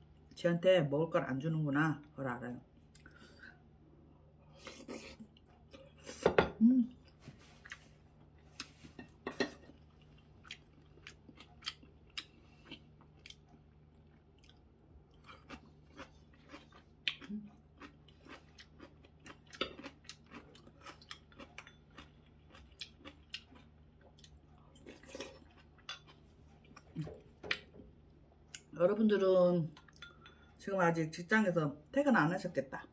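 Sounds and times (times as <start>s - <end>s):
person chewing crunchy food: 7.0s - 27.7s.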